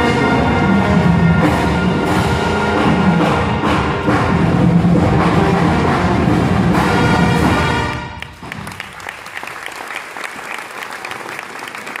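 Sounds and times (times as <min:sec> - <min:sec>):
marching band brass and percussion: 0:00.0 - 0:09.4
audience applause: 0:08.2 - 0:12.0.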